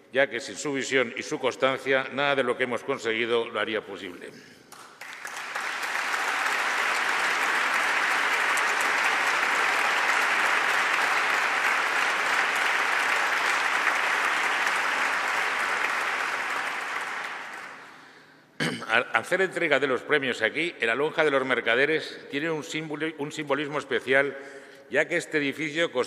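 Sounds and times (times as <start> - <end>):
audience applauding: 4.7 - 18.2.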